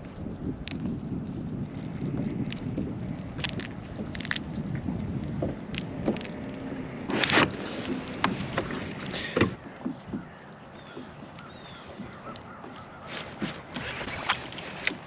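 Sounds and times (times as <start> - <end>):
water wash: 0.0 - 15.0
wind: 0.0 - 15.0
scuffle: 13.0 - 14.9.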